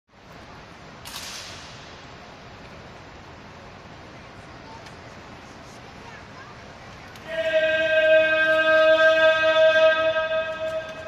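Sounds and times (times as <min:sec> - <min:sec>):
long held musical note: 0:07.3 - 0:11.0.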